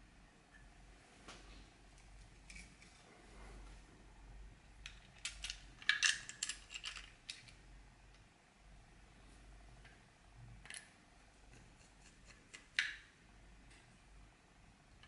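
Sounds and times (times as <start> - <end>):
plastic toy parts clicking: 4.8 - 7.6.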